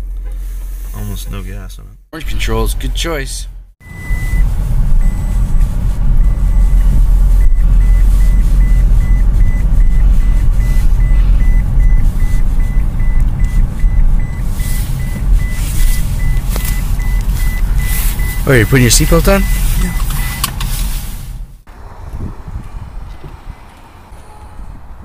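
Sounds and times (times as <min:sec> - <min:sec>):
low rumble inside car: 0:00.0 - 0:25.0
car warning chime beeping rapidly: 0:03.8 - 0:05.5, 0:06.2 - 0:20.5
rustling: 0:04.0 - 0:21.7.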